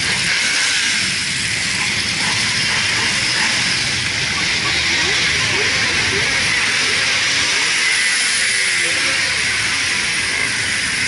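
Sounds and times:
motorcycle engines rumbling: 0.0s - 11.0s.

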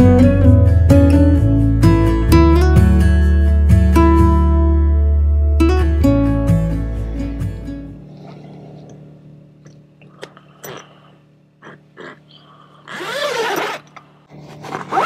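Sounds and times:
faint low hum: 6.0s - 15.0s.

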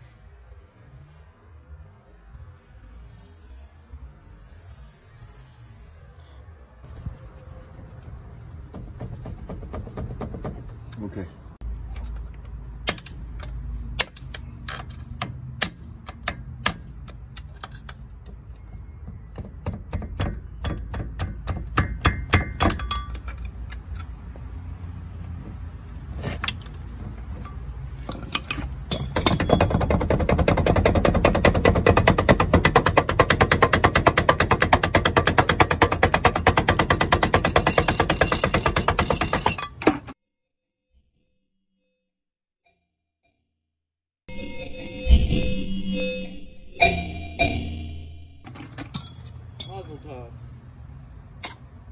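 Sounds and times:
hammer striking chisel on metal: 19.6s - 23.2s.

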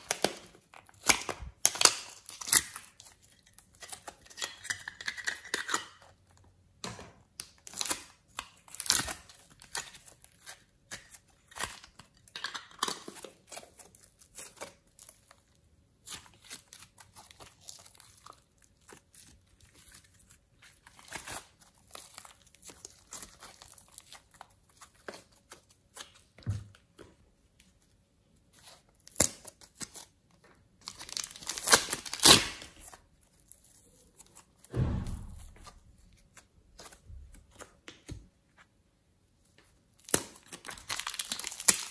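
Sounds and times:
slime crackling and tearing: 0.0s - 5.8s, 7.5s - 26.3s, 30.8s - 37.6s, 39.9s - 41.9s.

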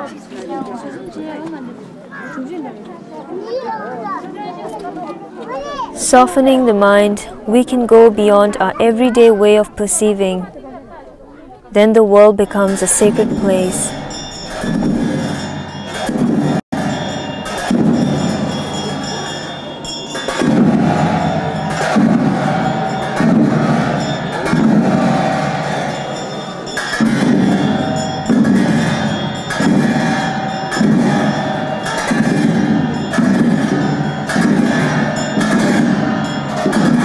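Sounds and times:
hand cymbals and drum beating: 12.5s - 37.0s.

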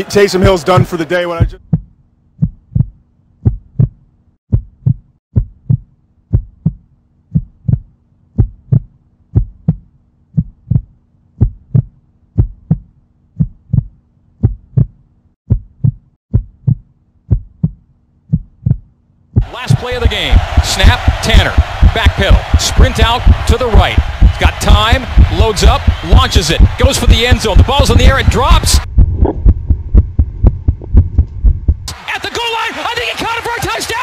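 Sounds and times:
heartbeat thumps: 0.4s - 31.9s.

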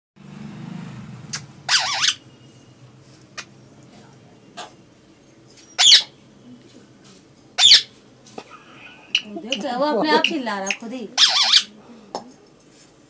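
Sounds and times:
parakeet warbling call: 1.3s - 2.4s, 5.7s - 6.2s, 7.6s - 7.9s, 8.9s - 11.8s.

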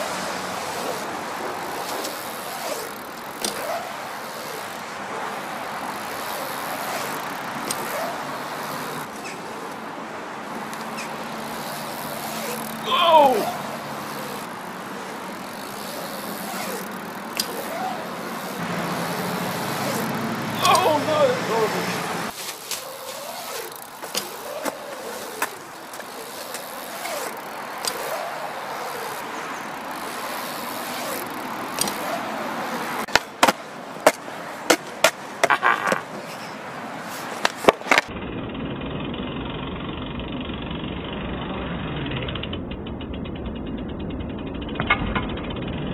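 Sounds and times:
bike tyres rolling on concrete: 0.0s - 45.9s
sharp clacks and knocks: 37.1s - 38.1s.

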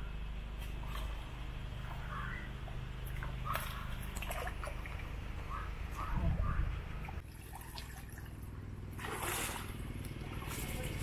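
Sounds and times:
water sloshing and splashing: 0.6s - 6.0s, 6.8s - 11.0s.

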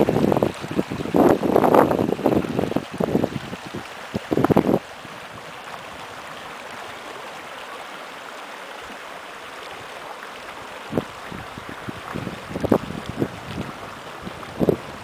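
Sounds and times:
wind gusts on microphone: 0.0s - 6.4s, 10.9s - 15.0s
stream rushing over rocks: 0.0s - 15.0s.

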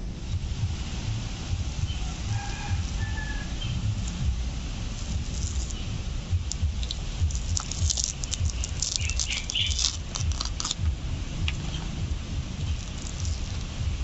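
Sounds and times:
low rumble: 0.0s - 14.0s
fruit pulp squelching: 5.0s - 12.0s, 12.6s - 14.0s
crackling clicks: 6.4s - 11.8s.

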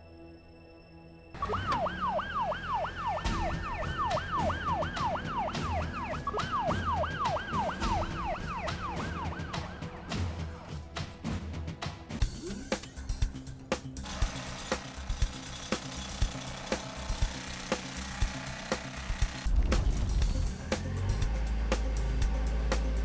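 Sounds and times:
emergency siren yelping: 1.4s - 10.1s.

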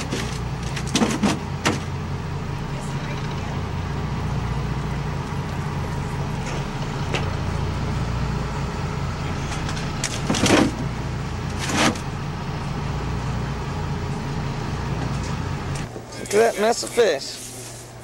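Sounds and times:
engine humming: 0.0s - 18.0s.

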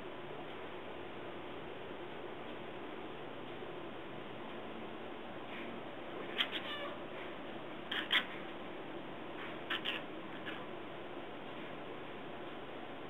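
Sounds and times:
cat chirping and chattering: 6.2s - 7.1s, 7.8s - 8.5s, 9.6s - 10.7s.

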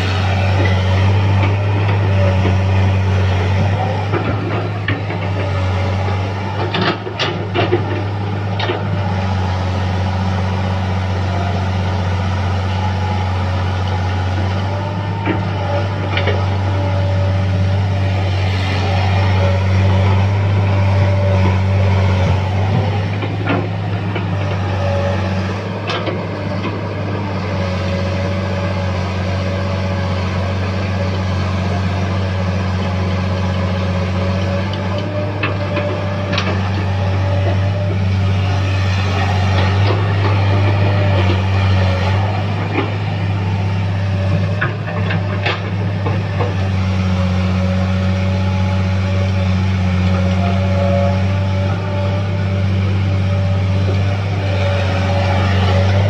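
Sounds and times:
excavator diesel engine running: 0.0s - 56.0s
hydraulic whine: 0.0s - 56.0s.

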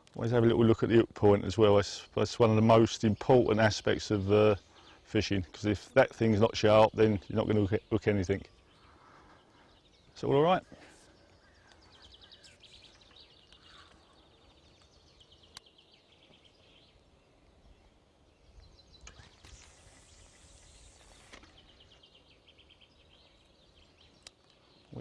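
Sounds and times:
faint birdsong trills: 0.0s - 25.0s
soft hiss: 8.6s - 25.0s.

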